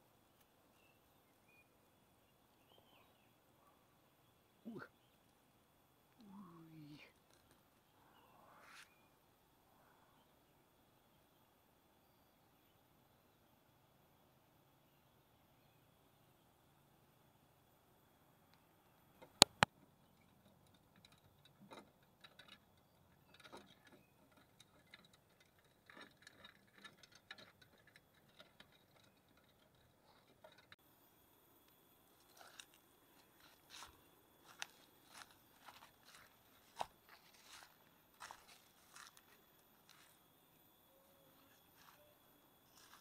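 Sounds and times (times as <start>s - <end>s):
sharp clicks: 19.2s - 19.8s
faint rustling and tapping: 31.7s - 40.5s
footsteps on dry leaf litter: 32.2s - 40.1s.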